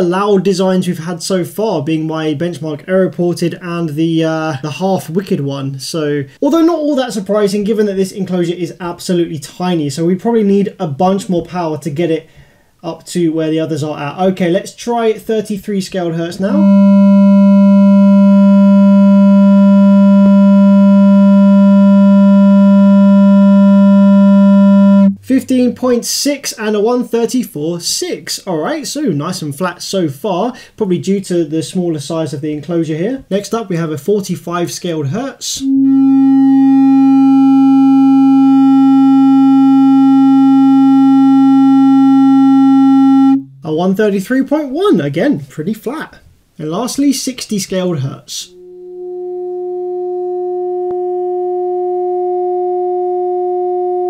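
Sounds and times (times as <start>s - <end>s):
buzzy sine test tone: 16.4s - 26.0s, 35.6s - 43.5s, 48.5s - 54.0s.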